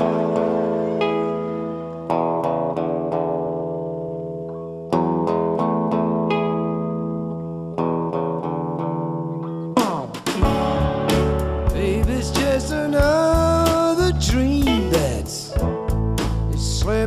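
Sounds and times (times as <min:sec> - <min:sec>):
strummed guitar chords: 0:00.0 - 0:17.0
band with drums and bass: 0:09.7 - 0:17.0.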